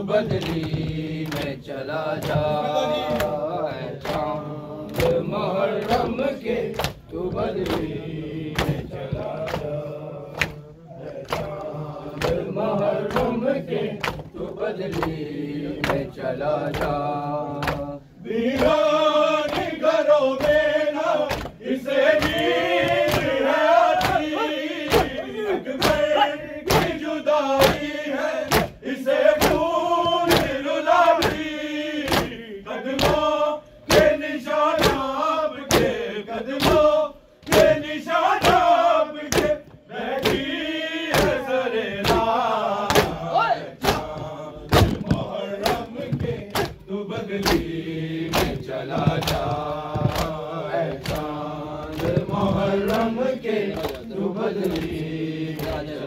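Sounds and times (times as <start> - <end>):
men chanting in unison: 0.0 - 56.0
hands slapping chests: 0.1 - 56.0.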